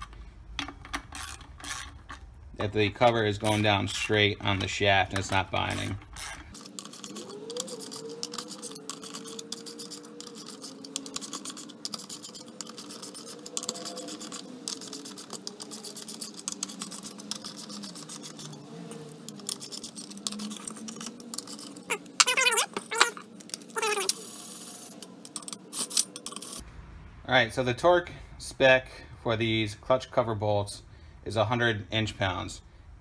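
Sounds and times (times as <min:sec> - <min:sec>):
hand ratchet clicking: 0:04.5 - 0:24.3.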